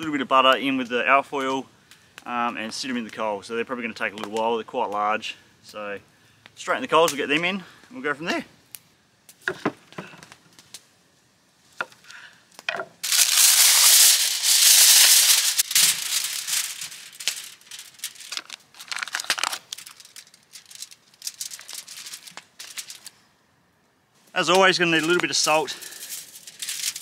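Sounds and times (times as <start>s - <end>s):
foil tearing and crinkling: 13.0s - 23.2s, 24.6s - 27.0s.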